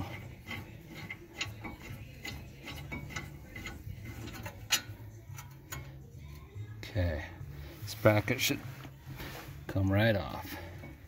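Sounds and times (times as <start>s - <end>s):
hand ratchet clicking: 0.0s - 6.0s.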